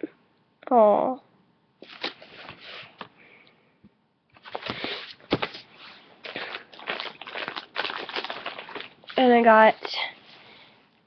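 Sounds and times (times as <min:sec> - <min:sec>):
package wrapping crinkling: 0:04.4 - 0:10.1.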